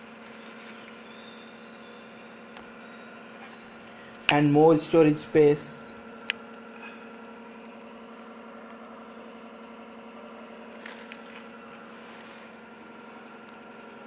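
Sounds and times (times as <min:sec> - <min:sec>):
steady hum with tones: 0:00.0 - 0:14.0.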